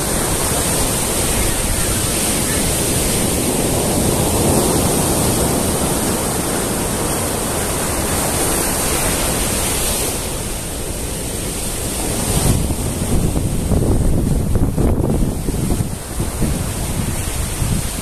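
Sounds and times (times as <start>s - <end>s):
ocean surf breaking on beach: 0.0s - 18.0s
wind gusts on microphone: 0.0s - 18.0s.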